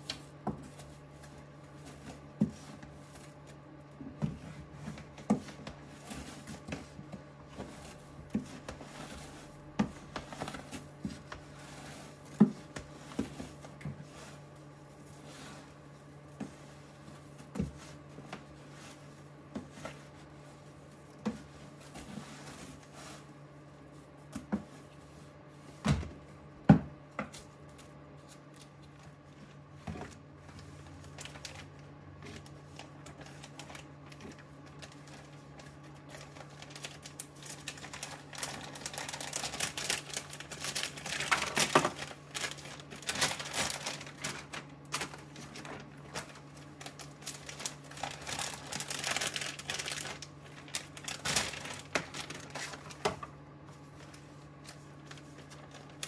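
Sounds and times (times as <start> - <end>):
low steady hum: 0.0 - 56.0
plastic bags crinkling: 30.4 - 56.0.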